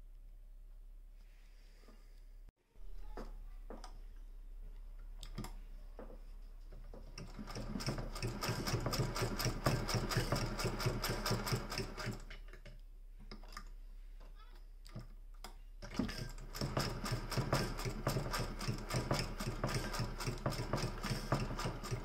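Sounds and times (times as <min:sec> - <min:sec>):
sewing machine rapid clatter: 0:07.2 - 0:12.3, 0:15.9 - 0:22.0.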